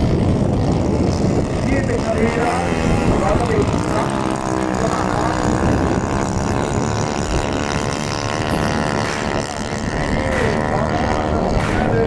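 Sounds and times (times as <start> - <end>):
engine running steadily: 0.0 - 12.0.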